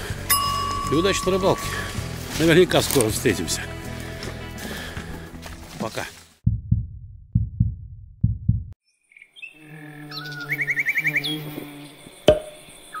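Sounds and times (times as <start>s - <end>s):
soft low thumps: 6.4s - 8.8s
birds chirping and trilling: 8.8s - 13.0s.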